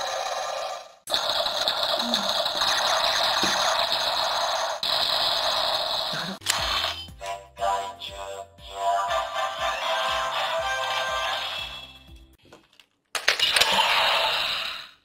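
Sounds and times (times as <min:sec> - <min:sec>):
toy mechanical grinding whir: 0:00.0 - 0:07.0, 0:13.2 - 0:15.0.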